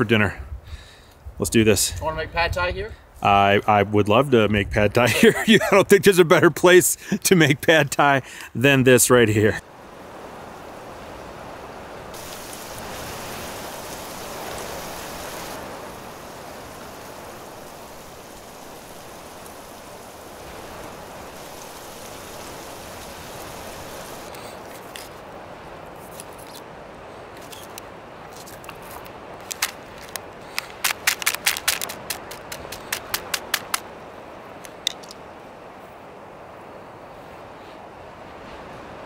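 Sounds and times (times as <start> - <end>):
rushing wind: 0.0 - 5.9, 9.2 - 39.0
knife clicks cutting on rock: 30.6 - 33.8.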